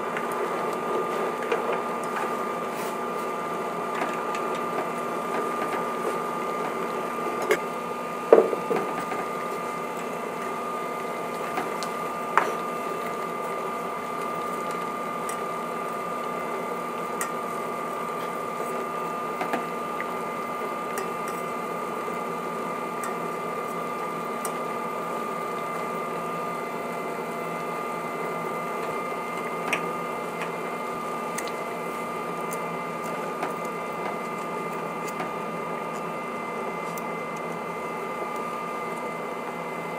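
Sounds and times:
cooktop electrical hum and whine: 0.0 - 39.9.

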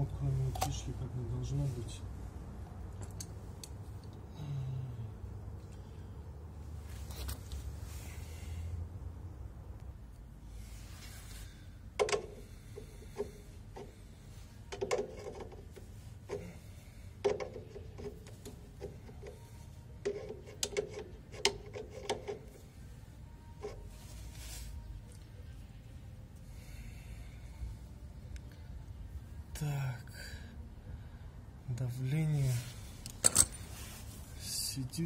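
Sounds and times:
low steady hum: 0.0 - 35.0
metallic clicks and knocks: 33.0 - 33.6.

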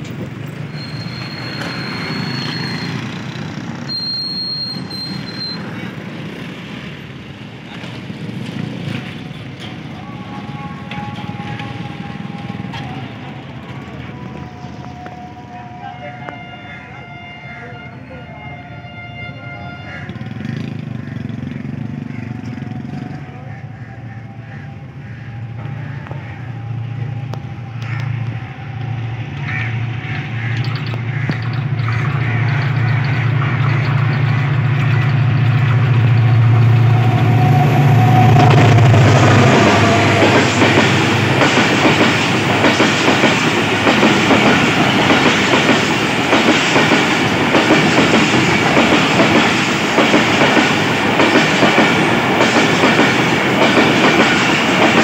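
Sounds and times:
locomotive engine drone: 0.0 - 55.0
train wheels clattering on rails: 4.8 - 15.2, 27.2 - 37.4, 38.2 - 55.0.

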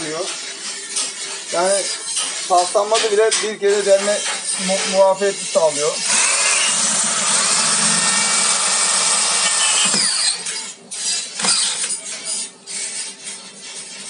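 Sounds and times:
drill grinding through metal: 3.8 - 13.3.

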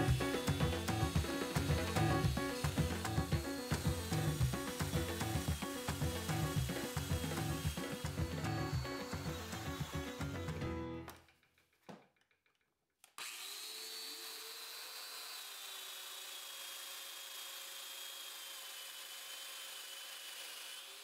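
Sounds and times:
dust extractor running: 0.0 - 10.9
power joiner whining: 0.0 - 11.2, 13.2 - 21.0
background music: 0.0 - 11.3.

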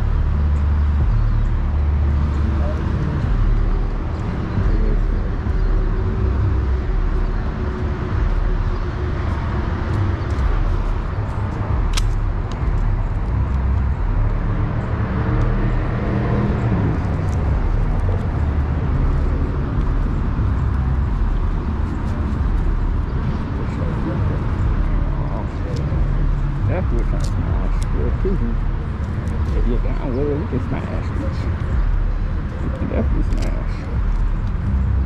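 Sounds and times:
vehicle engine idling: 0.0 - 35.0
sharp click: 11.9 - 12.6.

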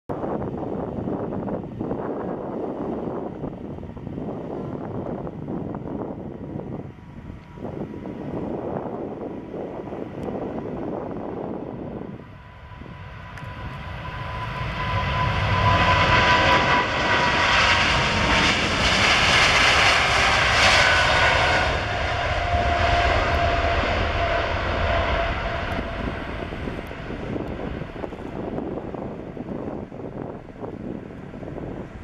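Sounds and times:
jet engines at takeoff: 0.1 - 32.0
jet whine dropping in pitch: 12.6 - 31.0.

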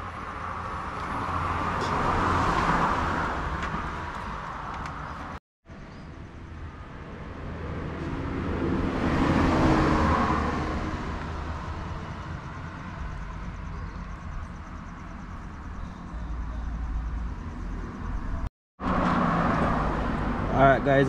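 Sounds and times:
vehicle passing by: 6.4 - 21.0.

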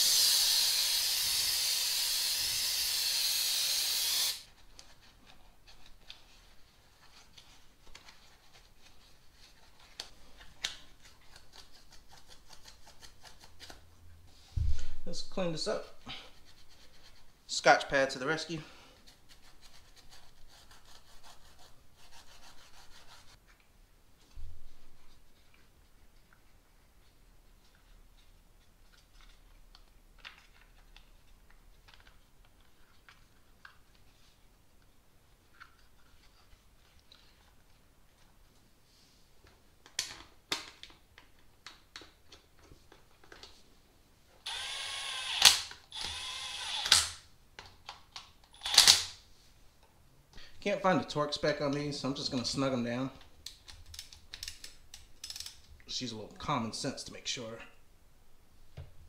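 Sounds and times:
electric ratchet spinning bolts: 0.0 - 4.4, 44.5 - 47.2, 48.6 - 49.1.

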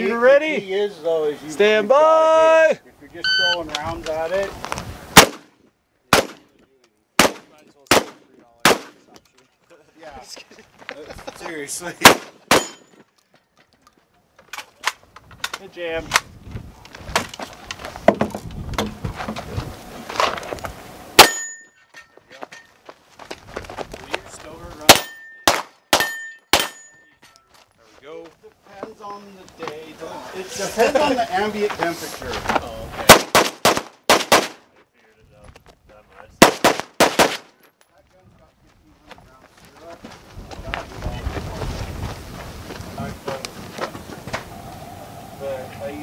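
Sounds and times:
gunshots: 5.1 - 5.5, 6.1 - 6.5, 7.2 - 9.0, 12.0 - 12.8, 24.9 - 26.8, 33.1 - 34.6, 36.4 - 37.6.

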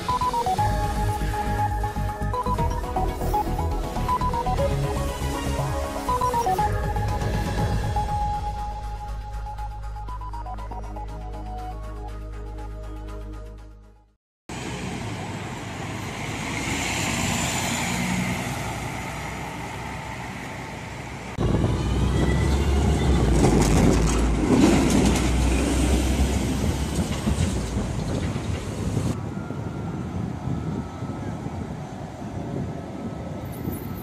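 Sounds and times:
tram passing with low rumble: 0.0 - 12.9, 14.5 - 34.0
street traffic noise: 0.0 - 13.0, 14.5 - 34.0
music: 0.0 - 14.2
steel wheels clattering over rails: 23.0 - 29.2.

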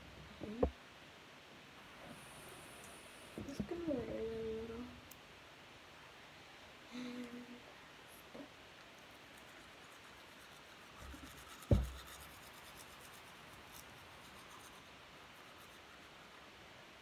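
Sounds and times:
toothbrush scrubbing teeth: 9.0 - 16.1.

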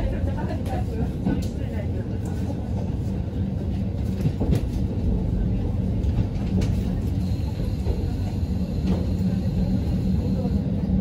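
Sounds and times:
train engine and wheels rumbling: 0.0 - 11.0
rail joint clicks: 3.8 - 11.0.

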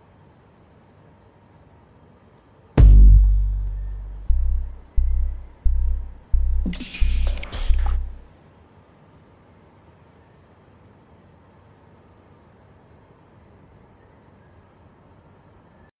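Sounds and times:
insect chirping: 0.0 - 15.9
low hum: 2.8 - 8.2.

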